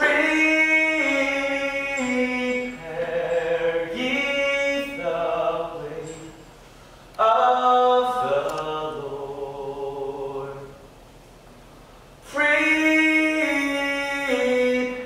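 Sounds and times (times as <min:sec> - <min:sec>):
voices singing a cappella chant: 0:00.0 - 0:06.4, 0:07.2 - 0:10.7.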